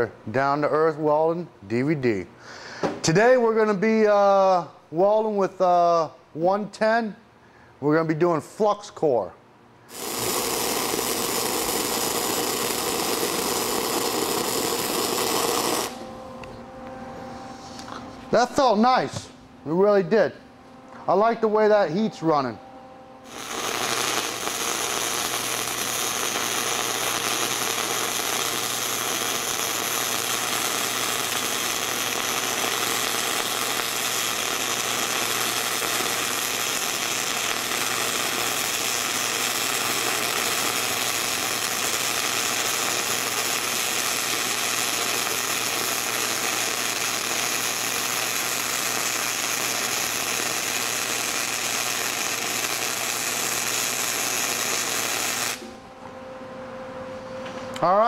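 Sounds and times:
wire-feed welding arc: 9.8 - 16.1, 23.2 - 55.8.

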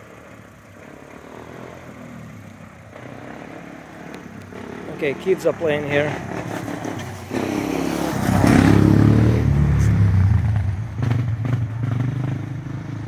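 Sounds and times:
small engine revving: 0.2 - 13.0.

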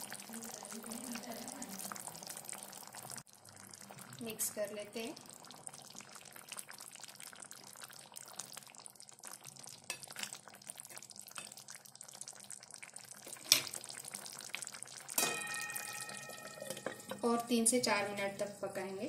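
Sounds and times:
curry simmering and crackling: 0.0 - 19.0
glass lid clanking on pan: 15.1 - 17.5.

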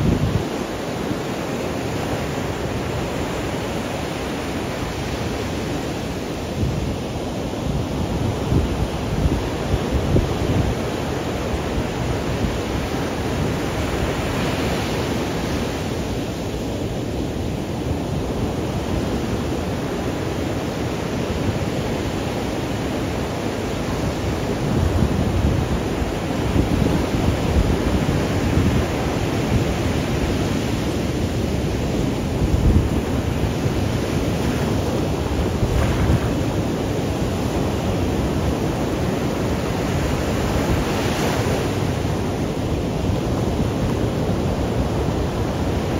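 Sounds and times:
wind buffeting microphone: 0.0 - 1.3, 24.0 - 45.9
ocean waves breaking on beach: 0.0 - 45.9.

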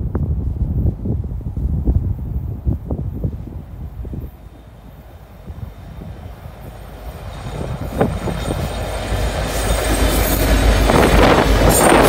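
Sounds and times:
train wheels on rails: 0.0 - 12.0
locomotive engine rumble: 3.3 - 12.0.

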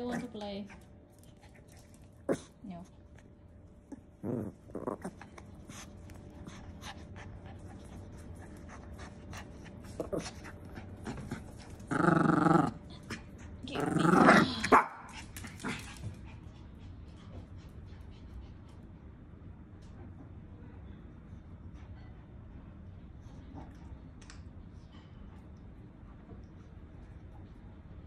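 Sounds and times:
small dog growling: 1.7 - 2.7, 3.8 - 6.6, 9.8 - 16.0.

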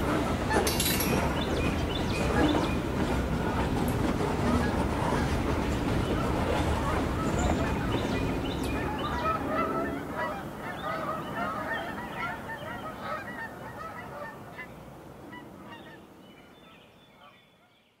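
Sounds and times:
birds honking: 4.5 - 14.7.

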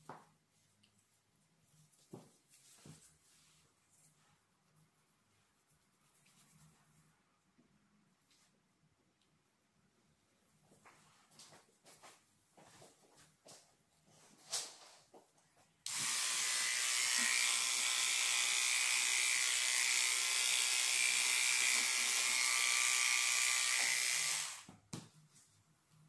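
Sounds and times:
electric hair clippers buzzing: 15.9 - 24.7.

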